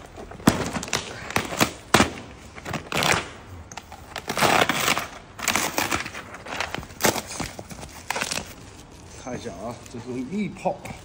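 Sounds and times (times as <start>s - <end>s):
cardboard ripping: 4.1s - 8.6s.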